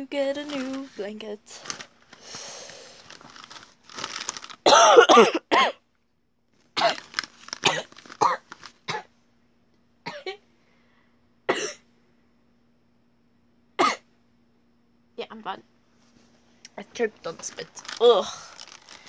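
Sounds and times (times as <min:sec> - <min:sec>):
child coughing: 0:04.7 - 0:05.8, 0:06.8 - 0:09.1, 0:10.1 - 0:10.4, 0:11.5 - 0:11.8, 0:13.8 - 0:14.1.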